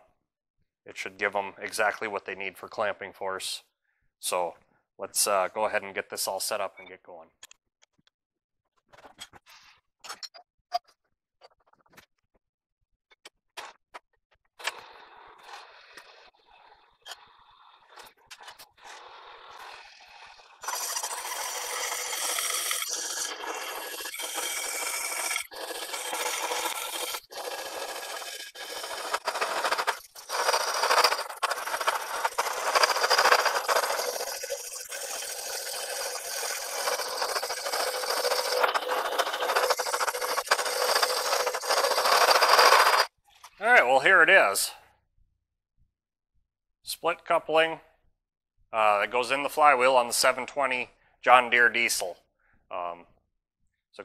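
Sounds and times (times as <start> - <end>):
slitting saw grinding steel: 14.7 - 43.1.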